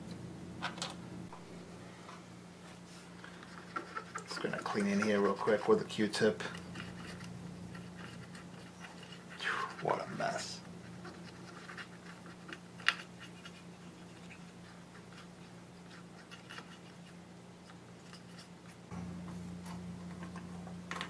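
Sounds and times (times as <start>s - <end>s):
steady low hum: 0.0s - 21.0s
cotton swab scrubbing circuit board: 3.3s - 17.3s.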